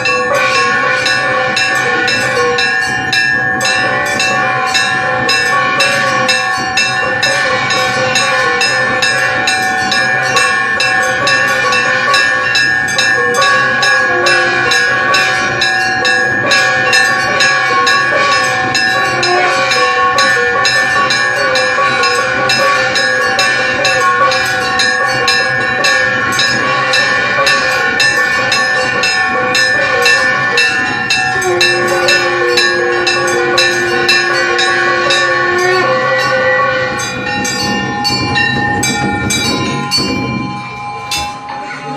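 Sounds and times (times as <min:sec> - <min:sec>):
bells ringing: 0:00.0 - 0:41.9.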